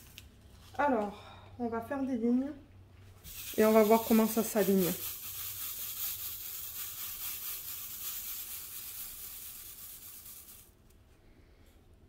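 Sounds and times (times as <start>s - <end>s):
small plastic pieces rattling: 3.3s - 10.8s.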